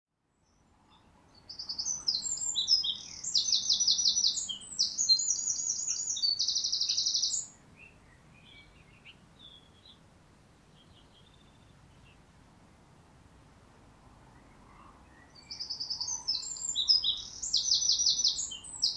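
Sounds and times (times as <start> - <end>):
wren singing rapid trills: 1.3 - 10.0, 15.2 - 18.9
faint high chirps: 1.4 - 9.9.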